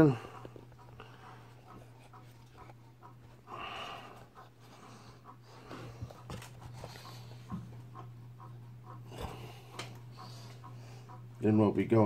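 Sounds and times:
steady low hum: 0.0 - 12.0
person snorting through nose: 9.0 - 9.8.

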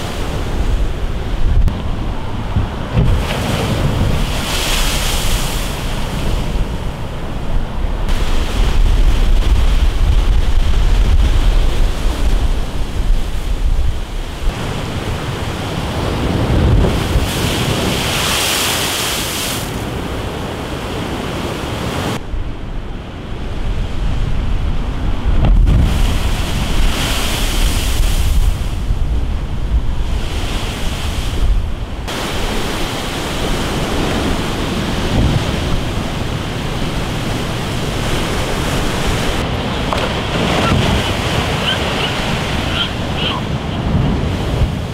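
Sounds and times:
wind buffeting microphone: 0.0 - 18.6, 22.0 - 44.9
surf breaking against a sea wall: 0.1 - 7.1, 30.1 - 44.9.

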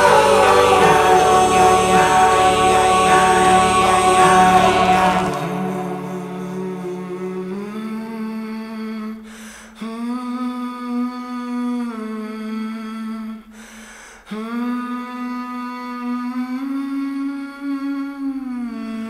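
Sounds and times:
person humming held notes: 0.0 - 8.3
short breath: 9.2 - 9.8, 13.5 - 14.3.

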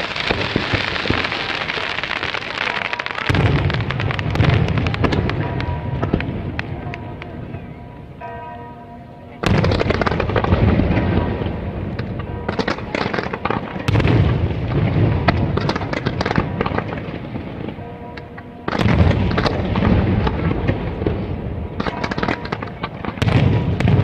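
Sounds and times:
fireworks bursting with bangs: 0.0 - 7.7, 9.4 - 17.8, 18.6 - 24.0
fireworks crackling: 0.0 - 7.8, 9.4 - 24.0.

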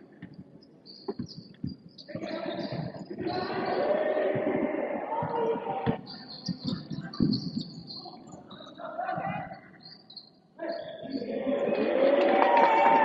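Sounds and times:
shoe squeaks on court: 0.2 - 3.6, 6.0 - 8.2
scattered voices: 2.1 - 13.0
thuds of ball and feet: 5.2 - 7.6.

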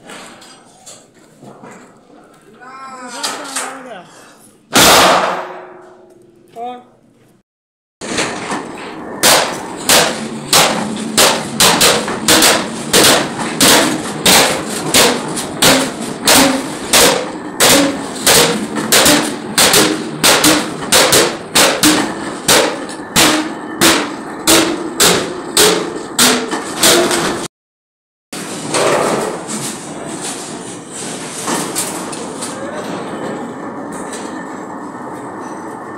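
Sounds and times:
hammers striking iron sheet: 4.7 - 6.2, 8.0 - 27.5, 28.4 - 29.7.

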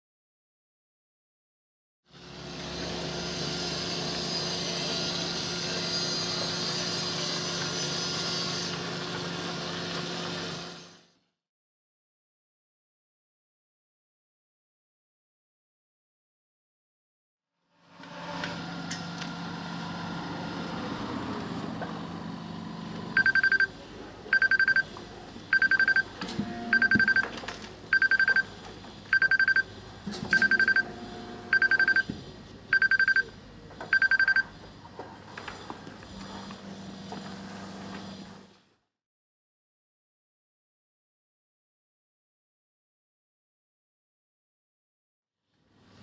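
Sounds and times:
short high alarm beeps: 23.2 - 23.7, 24.3 - 24.9, 25.5 - 26.1, 26.7 - 27.3, 27.9 - 28.5, 29.1 - 29.7, 30.3 - 30.9, 31.5 - 32.1, 32.7 - 33.3, 33.9 - 34.5.

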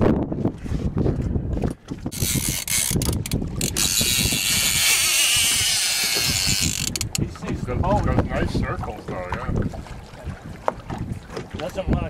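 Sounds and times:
low buffeting and knocks: 0.0 - 12.0
fishing reel drag buzzing: 2.1 - 7.2.

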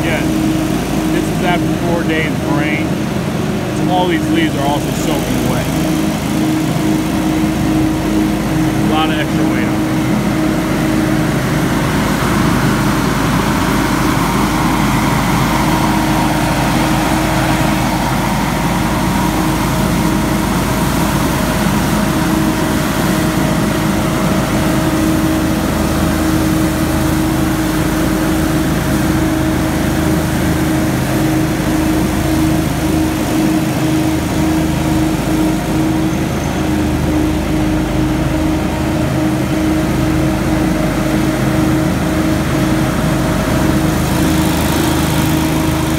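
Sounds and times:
blower fan whine: 0.0 - 45.9
leaf blower engine hum: 0.0 - 45.9.

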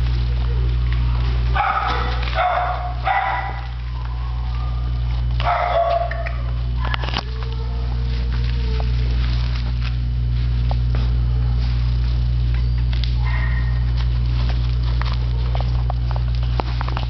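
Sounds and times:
steady low hum: 0.0 - 17.0
dog barking: 1.5 - 8.0, 13.2 - 14.0.

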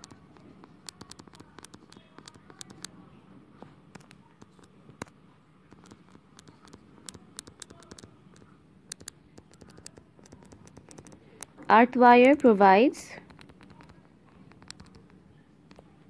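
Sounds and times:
stylus tapping on touchscreen: 0.0 - 2.9, 3.9 - 11.6, 13.2 - 15.1.

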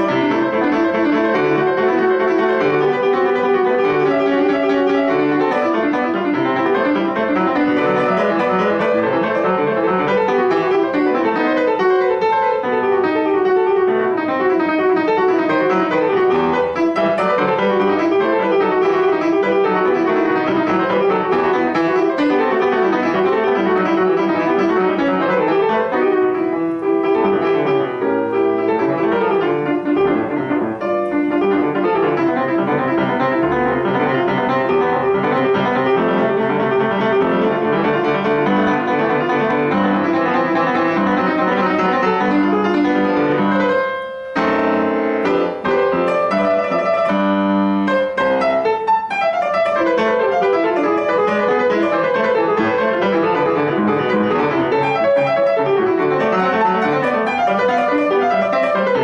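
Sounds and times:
grand piano playing fast classical: 0.0 - 59.0.

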